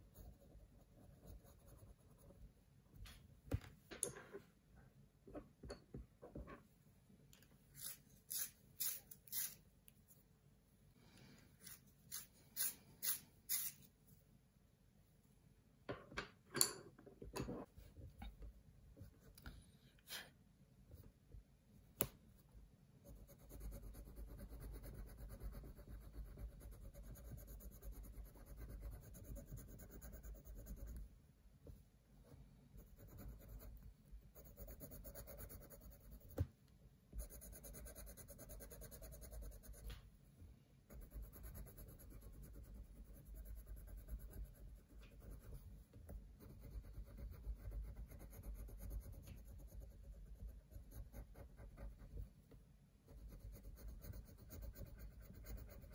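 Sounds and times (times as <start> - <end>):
pencil shading on paper: 0.0 - 2.4, 23.0 - 31.0, 32.8 - 33.8, 34.4 - 36.4, 37.1 - 39.9, 40.9 - 52.3, 53.1 - 55.9.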